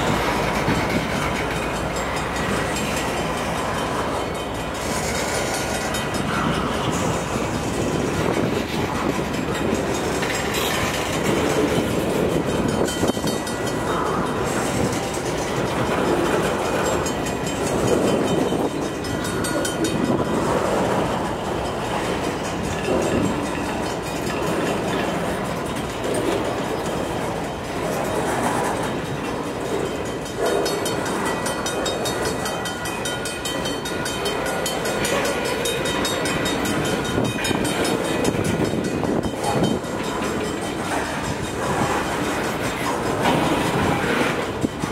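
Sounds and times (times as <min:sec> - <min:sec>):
wind noise on microphone: 0:00.0 - 0:01.6, 0:04.8 - 0:25.6, 0:36.0 - 0:44.9
diesel locomotives under load: 0:00.0 - 0:44.9
train rolling along track: 0:00.0 - 0:44.9.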